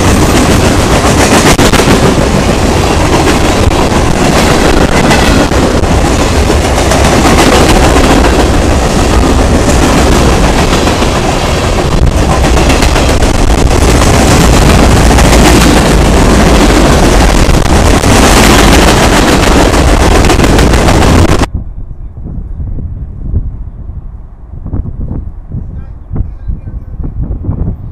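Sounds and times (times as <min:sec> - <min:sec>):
train wheels rumbling on rails: 0:00.0 - 0:21.5.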